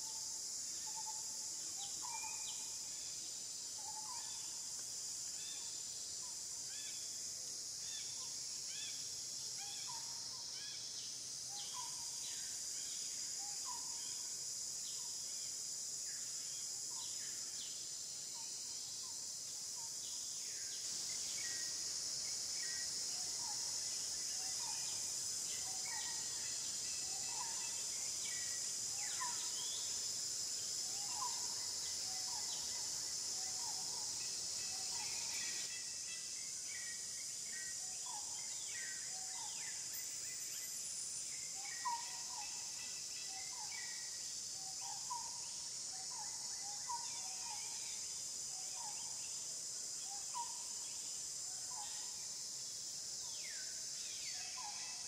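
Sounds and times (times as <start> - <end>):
high-pitched insect drone: 0.0 - 55.0.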